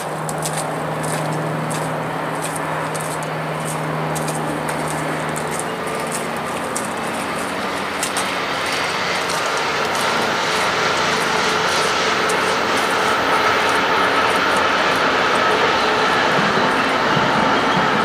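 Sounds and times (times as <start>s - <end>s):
diesel locomotive engine running: 0.0s - 18.0s
passenger cars rumbling on rails: 0.0s - 18.0s.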